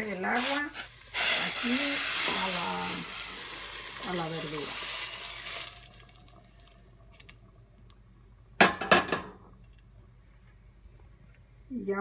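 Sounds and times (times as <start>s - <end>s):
boiling water pouring into pot: 0.2s - 7.9s.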